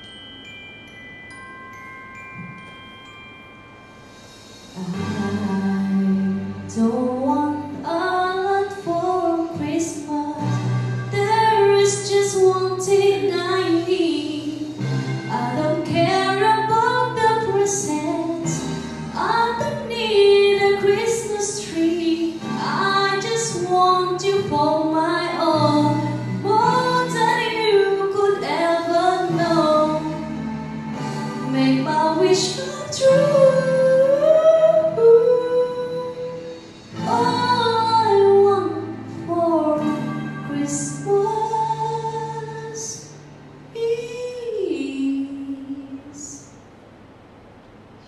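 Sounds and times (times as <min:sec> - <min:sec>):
backing track: 0:00.0 - 0:43.8
woman singing a carol: 0:04.8 - 0:18.6, 0:19.2 - 0:30.2, 0:31.5 - 0:36.4, 0:37.0 - 0:43.0, 0:43.8 - 0:46.5.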